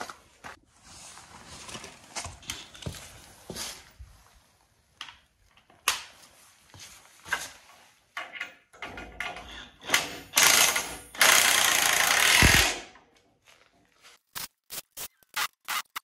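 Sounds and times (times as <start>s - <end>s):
scuffs and clicks: 0.0s - 4.4s
impact wrench hammering: 10.4s - 12.9s.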